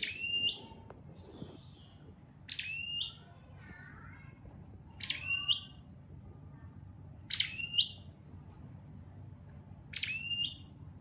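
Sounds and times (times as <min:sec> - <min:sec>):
bird sharp calls: 0:00.0 - 0:03.3, 0:05.0 - 0:05.8, 0:07.3 - 0:08.1, 0:09.9 - 0:10.8.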